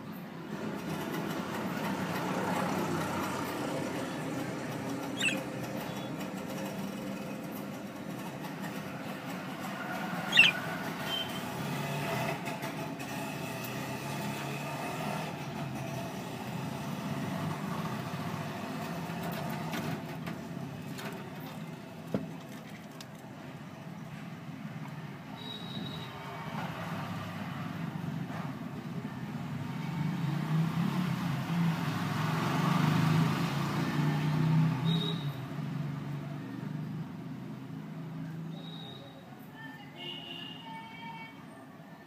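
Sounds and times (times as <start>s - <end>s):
budgerigars chittering: 5.0s - 6.1s, 10.3s - 11.4s
sharp bird chirps: 5.2s - 6.1s, 10.3s - 11.4s.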